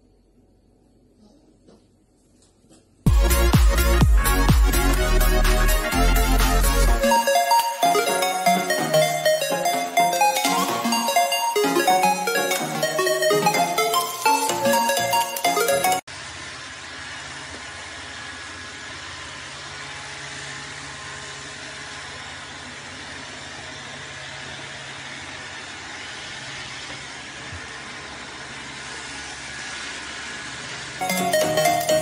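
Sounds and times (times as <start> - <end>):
robot vacuum cleaner whirring: 16.2 - 31.9.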